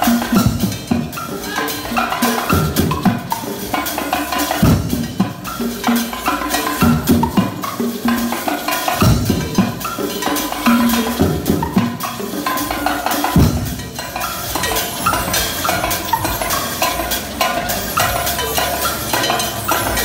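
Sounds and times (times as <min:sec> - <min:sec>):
heavy low drum strokes: 0:00.0 - 0:08.3, 0:08.9 - 0:12.4
percussion ensemble drumming: 0:00.0 - 0:20.0.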